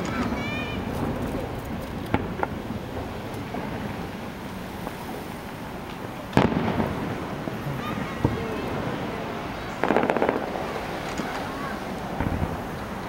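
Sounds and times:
fireworks popping: 0:00.0 - 0:13.0
loud firework bang: 0:06.3 - 0:12.6.

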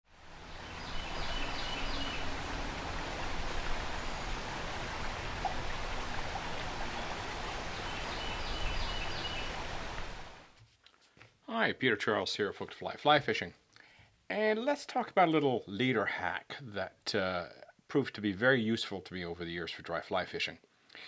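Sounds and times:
river water rushing: 0:00.1 - 0:10.5.

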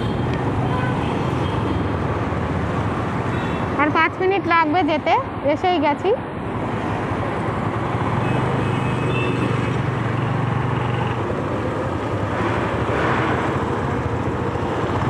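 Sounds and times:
rush of passing traffic: 0:00.0 - 0:15.0
street traffic noise: 0:00.0 - 0:15.0.

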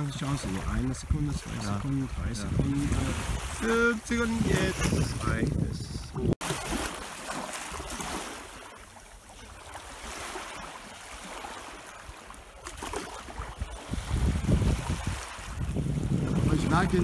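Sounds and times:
wind buffeting microphone: 0:00.0 - 0:06.4, 0:13.2 - 0:17.0
waves lapping on sand: 0:00.0 - 0:17.0.

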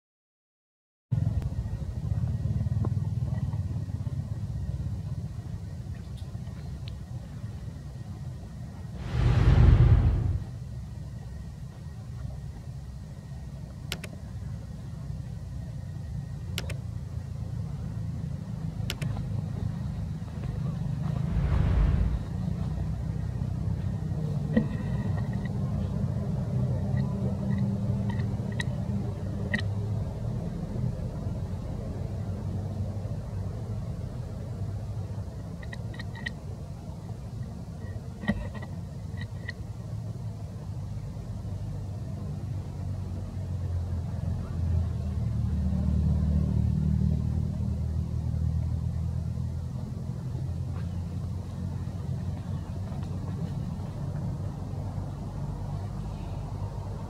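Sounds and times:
low microphone rumble: 0:08.9 - 0:10.7, 0:20.6 - 0:23.2.

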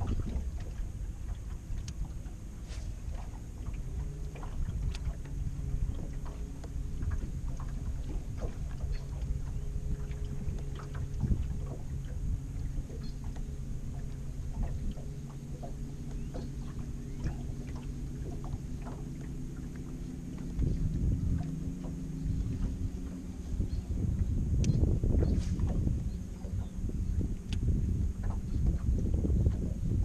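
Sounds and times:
small splashes and clicks: 0:00.0 - 0:12.2, 0:27.3 - 0:28.8
steady low hum: 0:00.0 - 0:30.0
water lapping against boat hull: 0:00.0 - 0:30.0.

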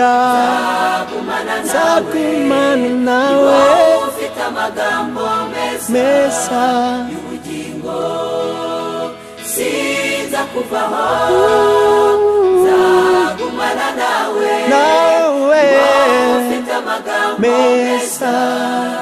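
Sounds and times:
gospel choir singing in harmony: 0:00.0 - 0:19.0
solo voice above choir: 0:00.0 - 0:19.0
low accompaniment: 0:11.0 - 0:14.6.

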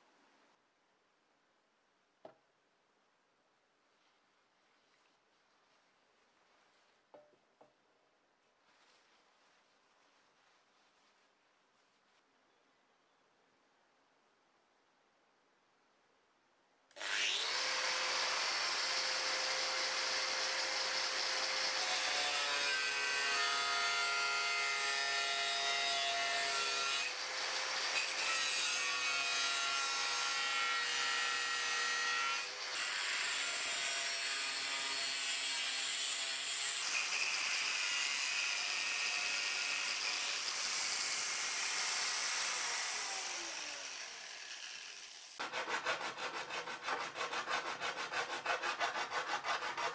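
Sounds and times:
angle grinder cutting steel: 0:17.0 - 0:22.6, 0:26.0 - 0:49.9.

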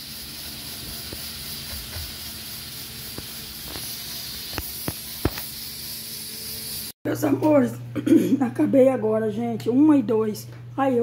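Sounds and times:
steam hissing from a pot: 0:00.0 - 0:07.0.

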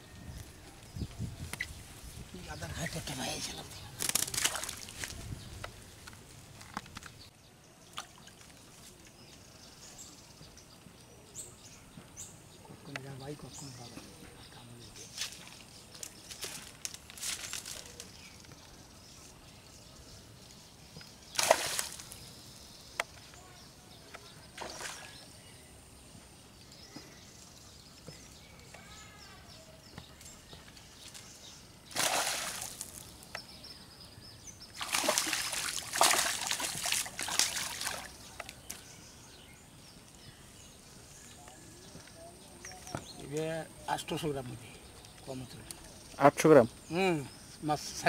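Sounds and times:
fish splashing in water: 0:04.0 - 0:05.1, 0:21.3 - 0:22.2, 0:31.9 - 0:33.0, 0:34.8 - 0:38.2.

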